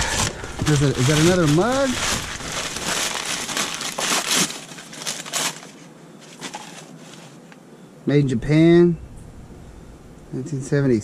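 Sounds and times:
trash crinkling and rustling: 0:00.0 - 0:07.5.

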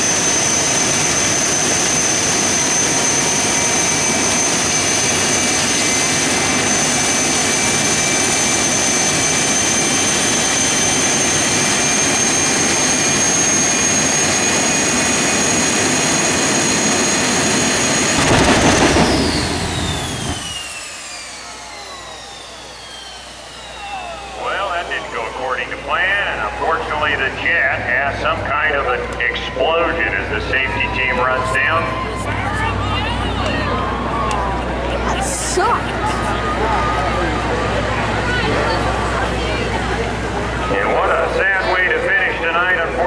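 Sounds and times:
turbine engine whine: 0:00.0 - 0:43.0
engine explosion burst: 0:18.2 - 0:21.4.

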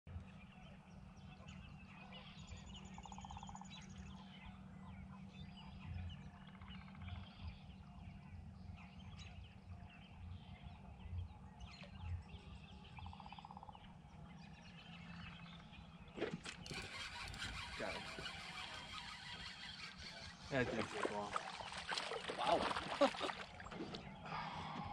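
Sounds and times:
low steady hum: 0:00.1 - 0:24.9
bird chirps: 0:00.4 - 0:24.9
rolling rattling bird call: 0:16.2 - 0:23.3.

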